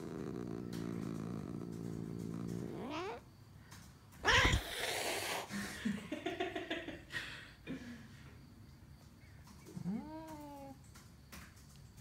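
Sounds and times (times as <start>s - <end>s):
cat growling: 0.0s - 3.2s, 4.2s - 5.5s, 9.7s - 10.8s
cat yowling: 4.2s - 4.8s
cat hissing snarl: 4.2s - 5.5s.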